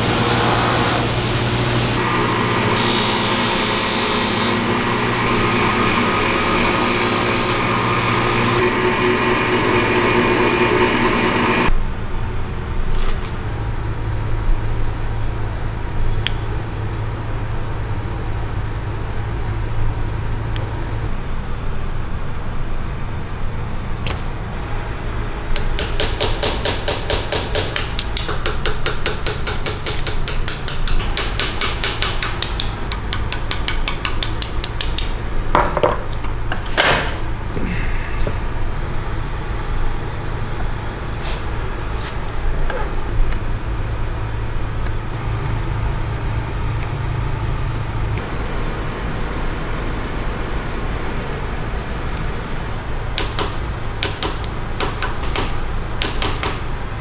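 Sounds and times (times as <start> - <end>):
low motor hum: 0.0 - 12.6, 37.3 - 54.6
grinding wheel grinding metal: 2.0 - 11.7
hammer tapping chisel: 25.6 - 36.0, 53.2 - 56.7.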